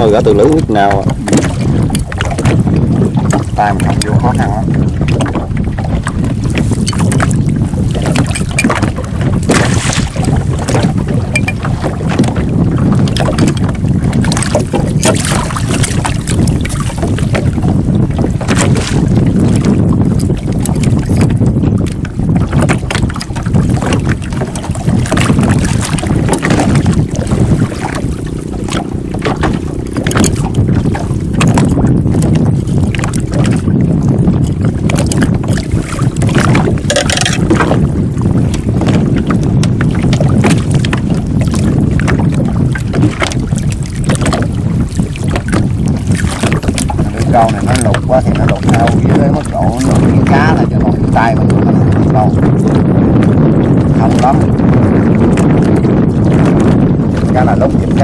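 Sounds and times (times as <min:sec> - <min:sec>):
wind rumbling on microphone: 0:00.0 - 0:58.0
handling clicks and knocks: 0:36.8 - 0:37.6.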